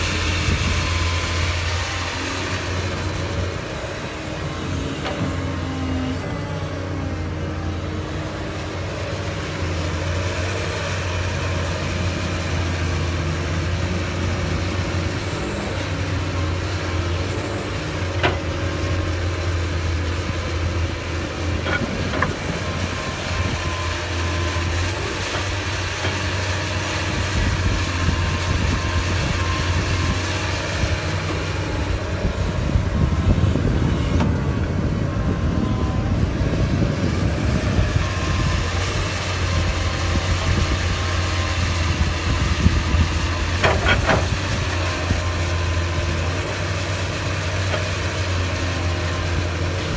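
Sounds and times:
excavator diesel engine droning: 0.0 - 49.9.

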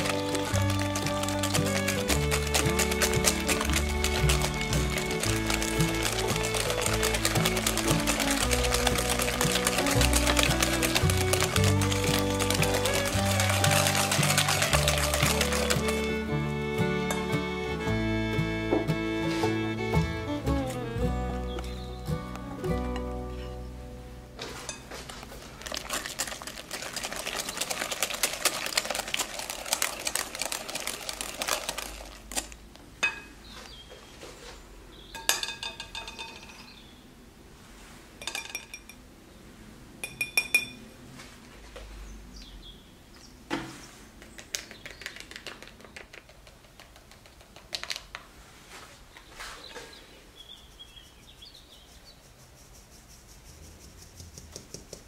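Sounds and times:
metal sieve ticking: 0.0 - 16.3
whisk beating in glass bowl: 0.0 - 16.3, 25.6 - 32.0
metal clinking on glass: 35.2 - 36.7, 38.2 - 39.0, 40.0 - 40.8.

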